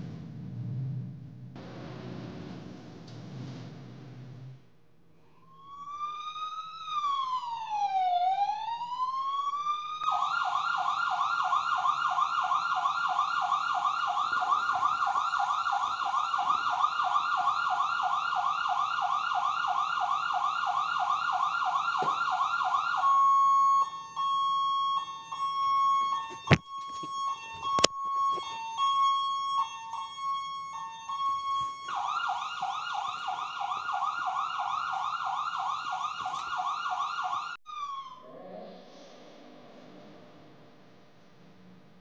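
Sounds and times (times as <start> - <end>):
electronic siren wailing and yelping: 5.4 - 38.3.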